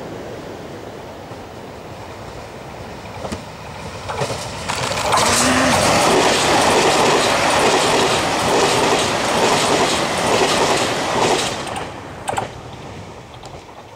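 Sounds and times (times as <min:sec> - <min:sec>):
train wheels clacking on rails: 0:03.1 - 0:13.9.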